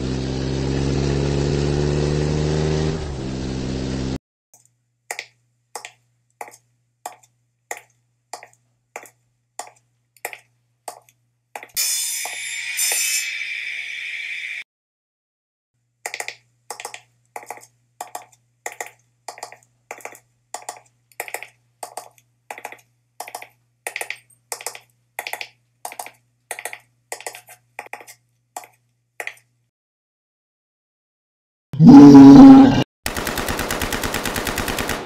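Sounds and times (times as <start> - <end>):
footsteps walking: 5.1 - 11.8, 16.2 - 23.6.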